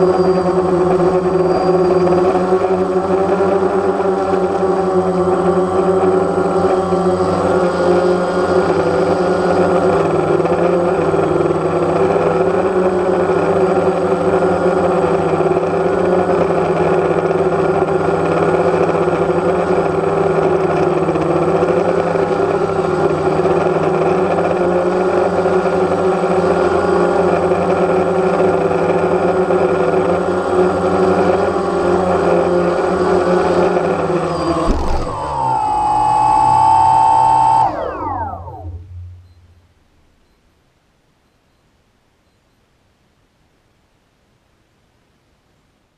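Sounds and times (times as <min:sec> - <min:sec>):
drone propellers whirring: 0:32.8 - 0:39.3.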